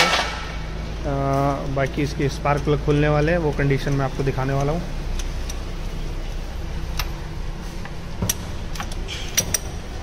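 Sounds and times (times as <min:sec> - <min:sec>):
steady low hum: 0:00.0 - 0:10.0
sharp metallic clicks and taps: 0:01.6 - 0:05.6, 0:07.8 - 0:09.9.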